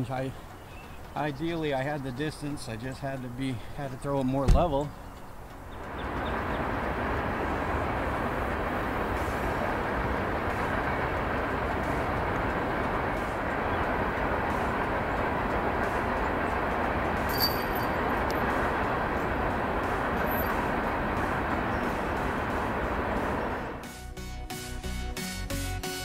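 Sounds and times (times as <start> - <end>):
steady rushing noise: 0.0 - 23.9.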